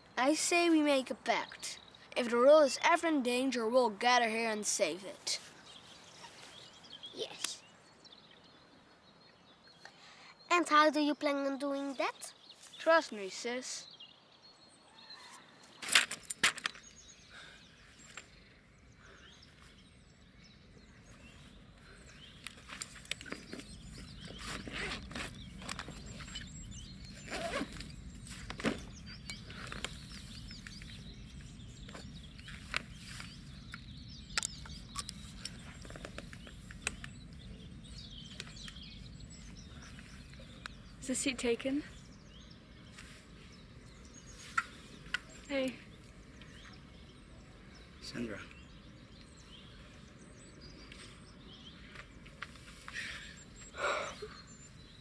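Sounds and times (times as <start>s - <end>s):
faint bird chirps: 4.8s - 15.8s, 16.6s - 55.0s
sharp clicks: 33.7s - 37.2s.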